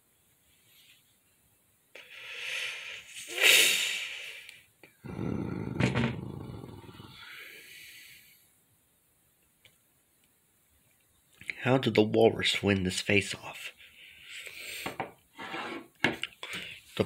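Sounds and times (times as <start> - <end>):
child imitating animal roars: 5.0 - 7.2.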